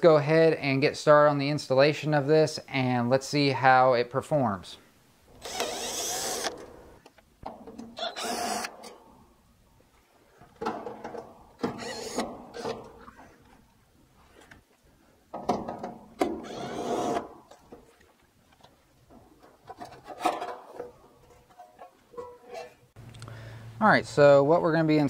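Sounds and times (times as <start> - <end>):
cordless drill driving screws: 5.4 - 6.8, 8.0 - 8.7, 11.6 - 12.8, 16.4 - 17.3.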